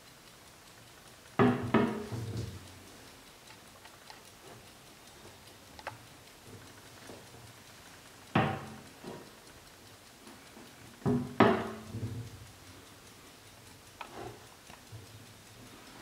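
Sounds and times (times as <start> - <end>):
faint clock ticking: 0.0 - 16.0
sharp metallic knocks: 8.4 - 8.8.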